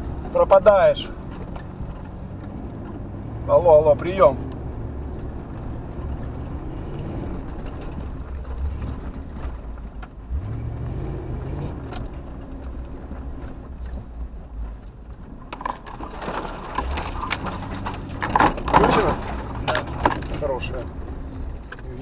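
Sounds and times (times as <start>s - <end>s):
vehicle body knocks and rattles: 4.4s - 10.4s, 11.8s - 22.0s.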